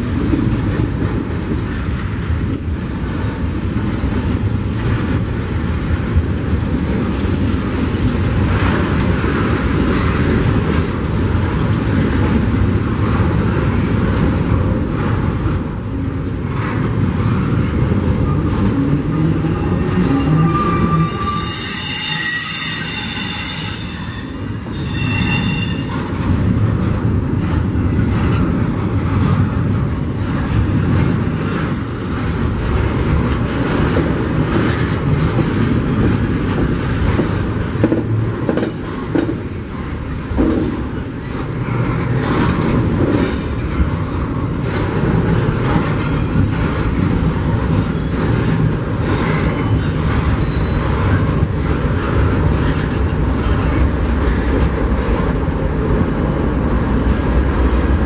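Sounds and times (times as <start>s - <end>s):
train wheels rumbling on rail: 0.0s - 58.0s
high wheel squeal: 19.6s - 26.1s, 46.1s - 47.1s, 47.9s - 51.0s.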